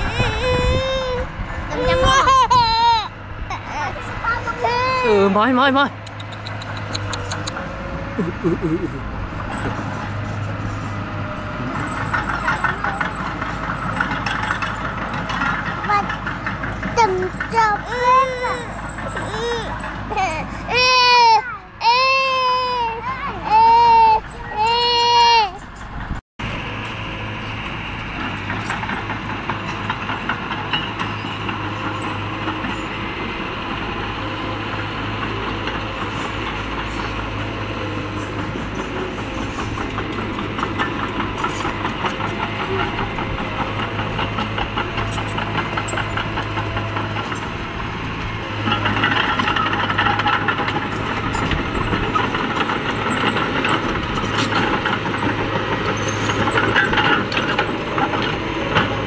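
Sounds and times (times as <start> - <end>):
diesel engine droning: 0.0 - 59.0
steel tracks clattering: 0.0 - 59.0.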